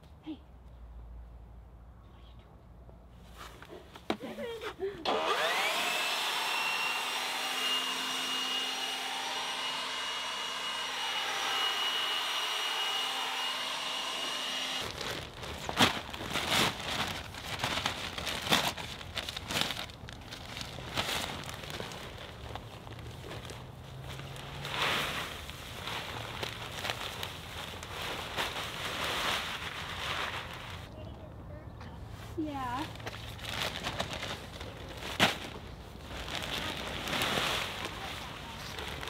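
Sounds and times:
leaf blower whining: 5.0s - 14.9s.

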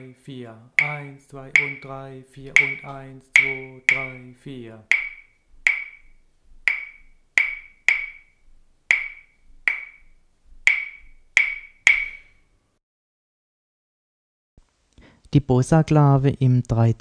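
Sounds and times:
wooden claves clicking: 1.6s - 1.8s, 2.6s - 4.2s, 4.9s - 6.1s, 6.7s - 8.3s, 8.9s - 10.0s, 10.7s - 12.3s.

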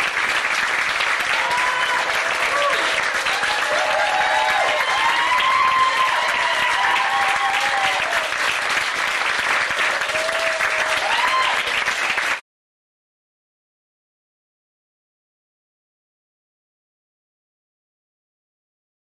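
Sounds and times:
audience applauding: 0.0s - 12.4s.

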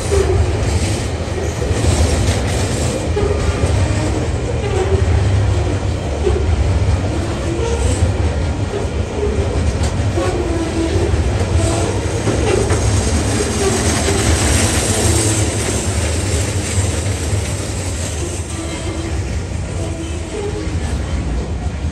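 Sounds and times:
wheels clicking over rail joints: 0.0s - 21.5s
freight train wheels rumbling: 0.0s - 21.9s.

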